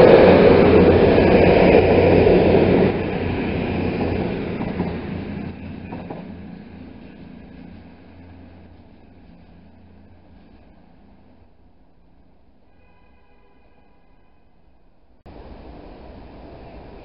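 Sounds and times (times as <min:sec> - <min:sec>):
train diesel engines humming: 0:00.0 - 0:17.0
train wheel clicks: 0:03.8 - 0:07.4.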